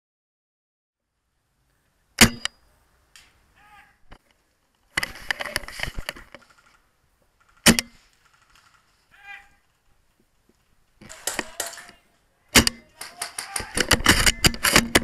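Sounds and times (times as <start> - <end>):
rapid rattling clicks: 7.4 - 9.0
airsoft rifle double crack: 7.5 - 8.7, 11.0 - 15.0.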